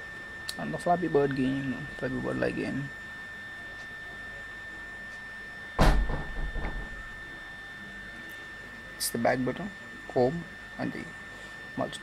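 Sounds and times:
loud low thump: 0:05.8 - 0:07.1.

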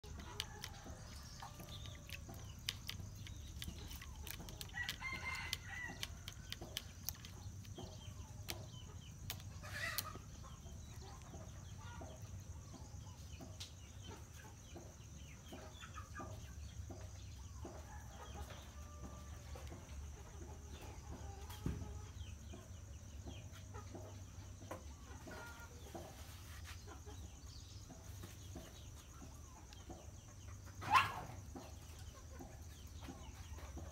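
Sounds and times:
cat lapping water in plastic pan: 0:00.0 - 0:07.6
chickens clucking: 0:00.0 - 0:33.9.

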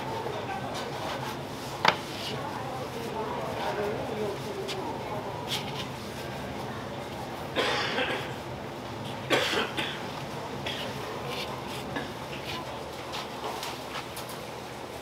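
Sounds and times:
market background noise: 0:00.0 - 0:15.0
person coughing: 0:07.6 - 0:08.4, 0:09.3 - 0:10.0.

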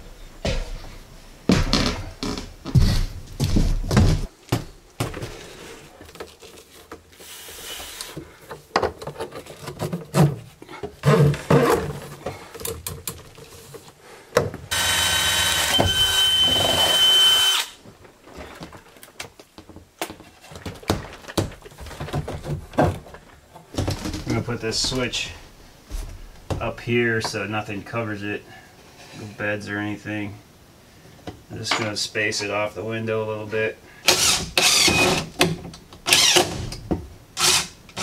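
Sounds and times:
handling knocks and thumps: 0:00.4 - 0:07.2, 0:17.8 - 0:27.4
cordless drill whine: 0:14.7 - 0:17.8, 0:34.1 - 0:35.2.

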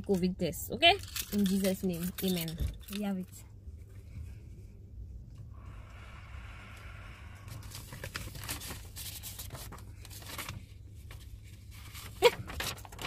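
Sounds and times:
paper rustling and tearing: 0:07.5 - 0:13.0.

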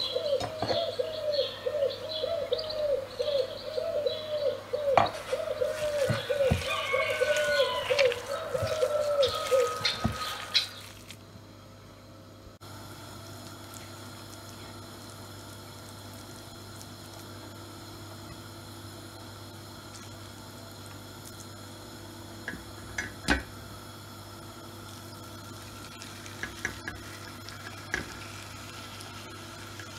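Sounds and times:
bird calling: 0:00.0 - 0:11.1
oil hissing on a pan: 0:24.9 - 0:29.9.

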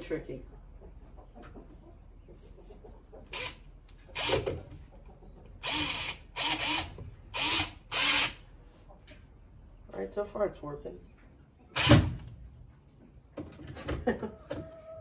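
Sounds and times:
cordless drill motor whining: 0:04.2 - 0:04.4, 0:05.6 - 0:08.4.

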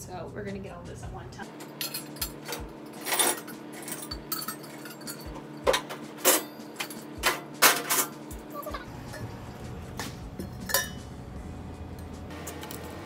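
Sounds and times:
steady low hum: 0:00.0 - 0:13.0
dishes and utensils clattering: 0:01.5 - 0:09.4, 0:10.0 - 0:11.1.

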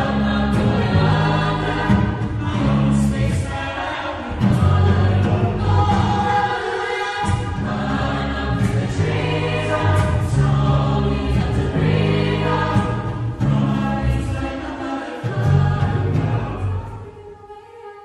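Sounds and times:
low bass line: 0:00.0 - 0:03.5, 0:04.4 - 0:06.4, 0:07.4 - 0:14.5, 0:15.4 - 0:16.9
choir singing in harmony: 0:00.0 - 0:18.0.

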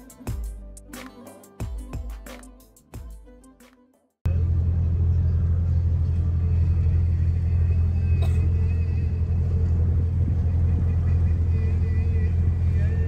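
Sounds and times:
boat engine droning: 0:04.3 - 0:13.0.

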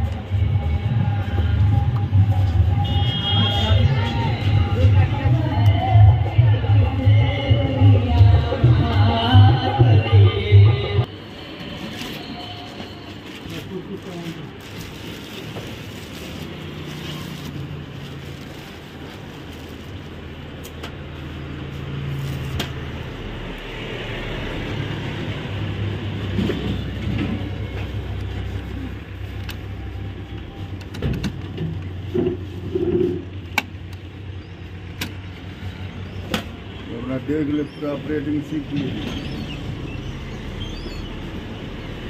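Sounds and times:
plastic wrapping rustling: 0:11.9 - 0:20.6.

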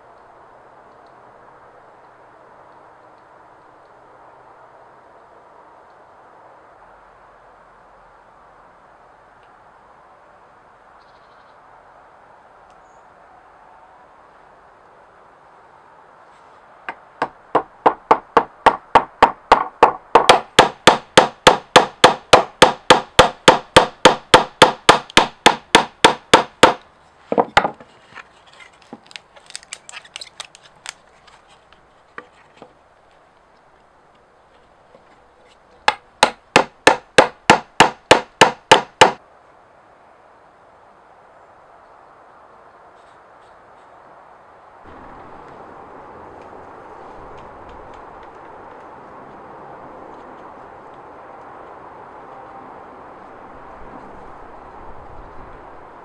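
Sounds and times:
hammer tapping rapidly: 0:17.6 - 0:26.8, 0:35.9 - 0:39.2
soft irregular knocks: 0:26.6 - 0:29.1.

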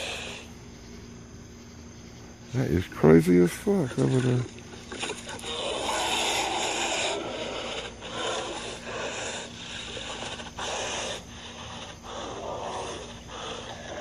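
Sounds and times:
animal giving harsh rasping calls: 0:00.0 - 0:00.6, 0:03.9 - 0:14.0.

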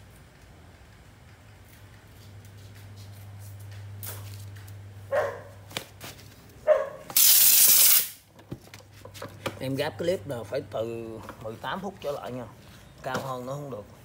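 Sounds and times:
dog barking: 0:05.1 - 0:05.6, 0:06.6 - 0:07.1
loud steady hiss: 0:07.1 - 0:08.3.

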